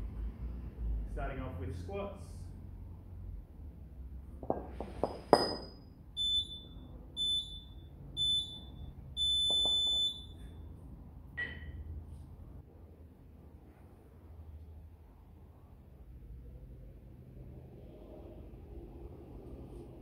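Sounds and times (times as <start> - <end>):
kettlebell clank: 4.4 - 5.8
interval timer beeps: 6.2 - 10.4.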